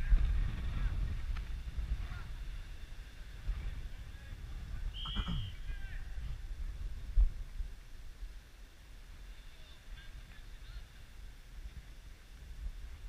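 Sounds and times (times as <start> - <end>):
wind rumbling on microphone: 0.0 - 13.0
short high whistle blast: 4.9 - 5.7
distant shout: 4.9 - 6.4.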